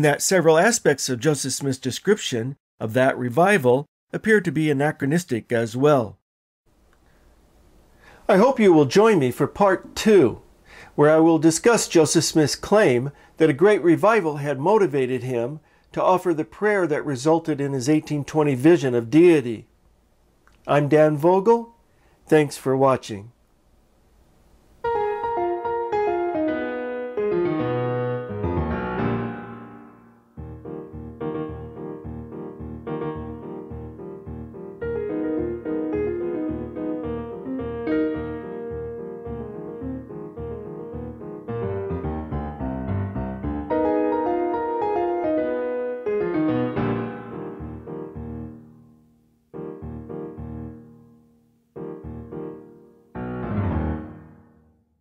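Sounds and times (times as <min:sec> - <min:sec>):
keyboard music: 0:24.8 - 0:54.8
piano chords ringing: 0:24.8 - 0:54.8.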